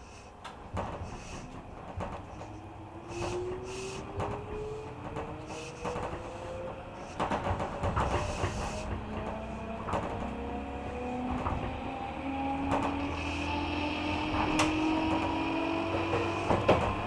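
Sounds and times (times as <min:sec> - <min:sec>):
train running rumble: 0:00.0 - 0:17.0
wheels clacking over rail joints: 0:00.0 - 0:17.0
train motor whine rising: 0:01.9 - 0:17.0.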